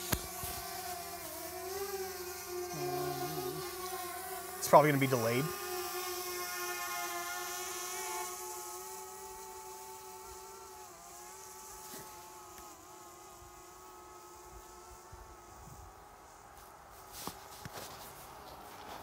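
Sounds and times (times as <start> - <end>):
drone propellers humming: 2.3 - 5.6.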